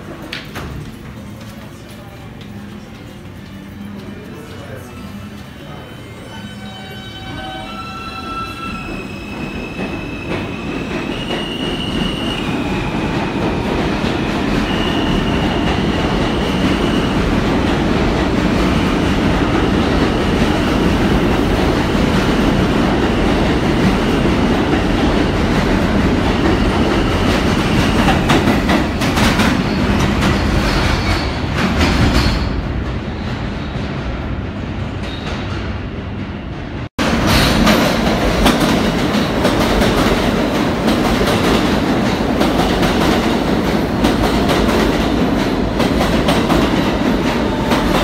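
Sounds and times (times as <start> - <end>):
train wheels rumbling: 7.2 - 48.0.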